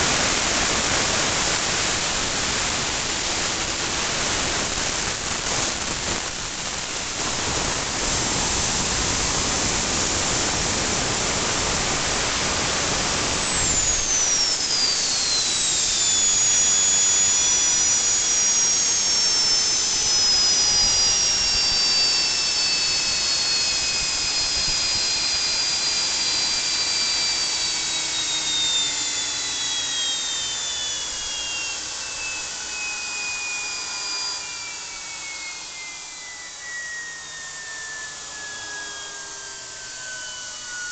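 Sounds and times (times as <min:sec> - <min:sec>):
gas turbine rushing: 0:00.0 - 0:32.8
turbo whine falling in pitch: 0:00.0 - 0:40.9.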